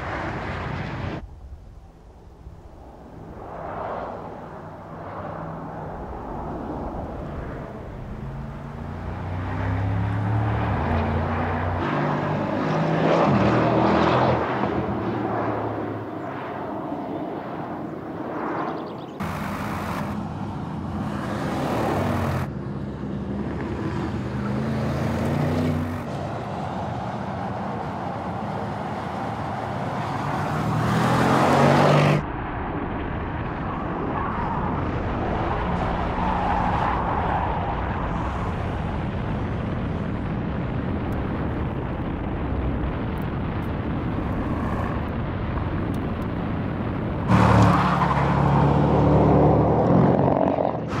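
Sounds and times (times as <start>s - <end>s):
car engine accelerating hard: 7.8s - 15.1s, 47.3s - 51.0s.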